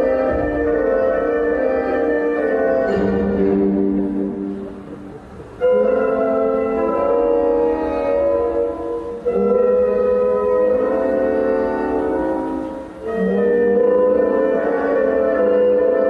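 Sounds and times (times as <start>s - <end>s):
orchestral ballet music: 0.0s - 16.0s.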